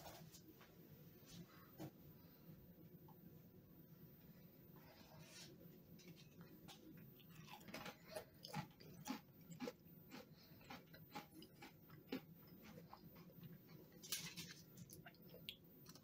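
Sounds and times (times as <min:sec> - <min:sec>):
person chewing crisp chip: 0:07.2 - 0:16.0.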